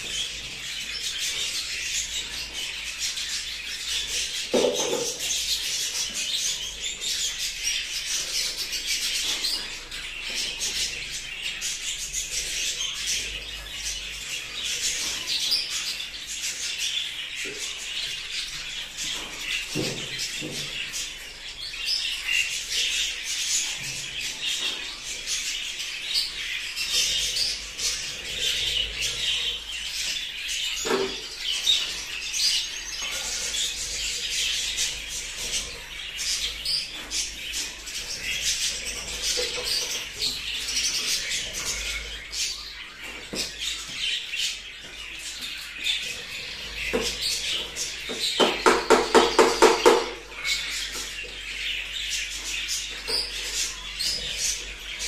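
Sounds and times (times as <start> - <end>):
budgerigars chirping: 0.0 - 55.0.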